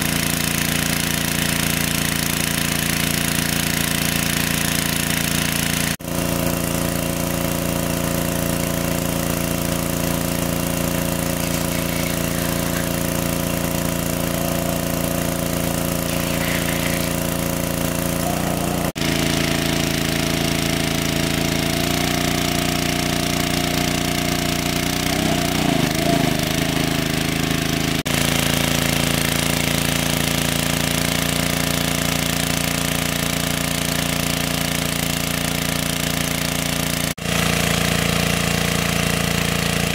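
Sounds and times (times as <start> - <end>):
engine-driven water pump running: 0.0 - 39.9.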